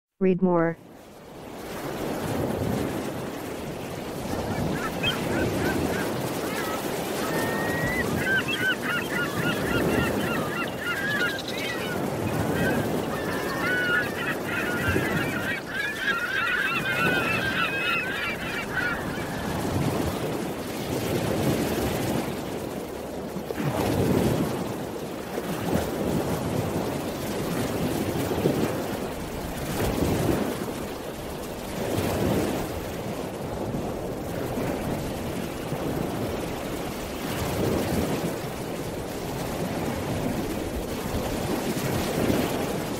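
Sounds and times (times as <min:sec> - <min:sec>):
birds honking like geese: 0:04.3 - 0:20.3.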